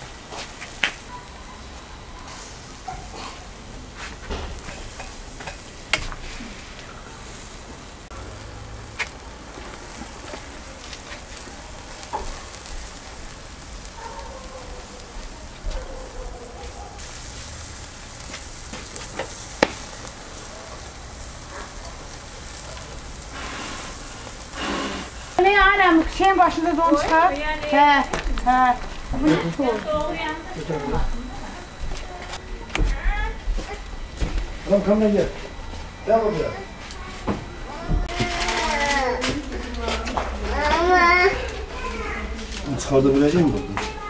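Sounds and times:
food frying and sizzling: 0.0s - 44.0s
sharp pops: 18.8s - 19.9s.

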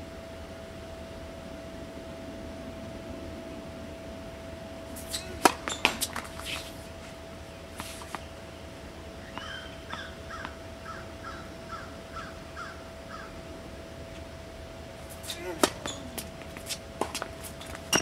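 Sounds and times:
faint steady hum: 0.0s - 18.0s
tennis ball bouncing: 5.0s - 6.8s, 15.1s - 18.0s.

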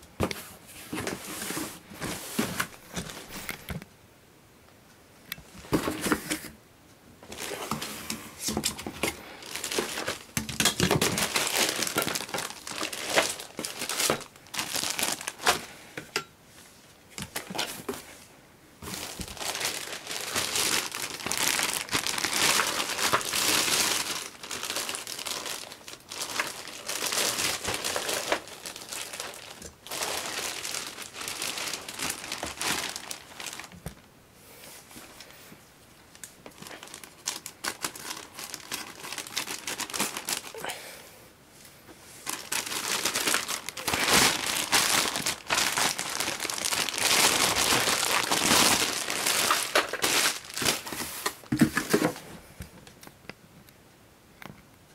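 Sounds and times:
plastic bag crinkling: 7.2s - 15.8s, 18.8s - 34.1s, 36.0s - 40.7s, 42.2s - 52.2s.

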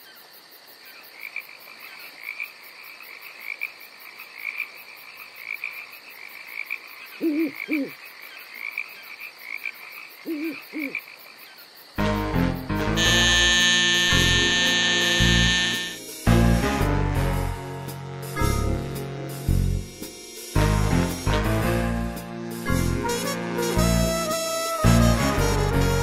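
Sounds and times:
frogs croaking: 0.0s - 12.3s, 13.0s - 16.2s
deeper double croaks: 12.0s - 16.8s
high-pitched trilling chorus: 13.0s - 16.2s.

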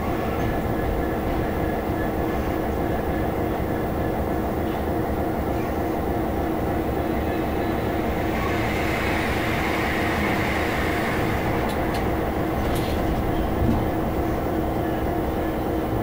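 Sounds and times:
locomotive engine drone: 0.0s - 16.0s
passing train rushing hiss: 0.0s - 16.0s
wheel on rail rumble: 6.3s - 16.0s.

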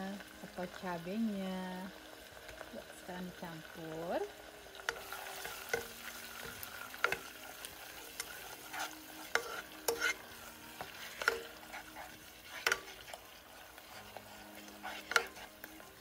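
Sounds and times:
butter and garlic sizzling: 0.0s - 16.0s
spatula scraping a pot: 4.8s - 16.0s.

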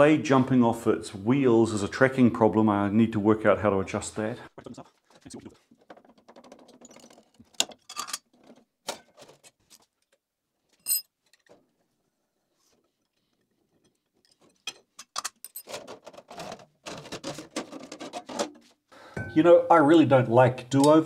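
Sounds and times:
metal clicks and knocks: 5.6s - 10.2s, 13.8s - 18.6s
ringing metallic clink: 19.2s - 19.5s.

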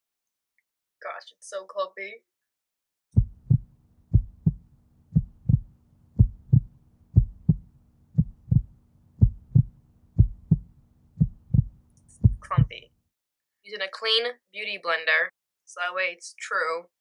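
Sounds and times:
heartbeat lub-dub: 3.2s - 12.8s.

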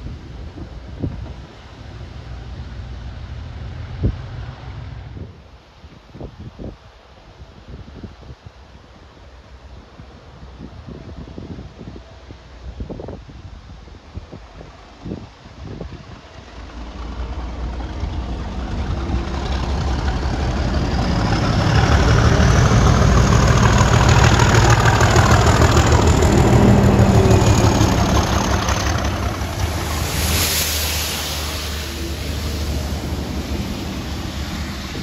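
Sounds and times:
diesel locomotive engine: 0.0s - 5.8s, 8.7s - 35.0s
wheels rolling over rails: 16.5s - 35.0s
water jets hissing: 23.1s - 35.0s.

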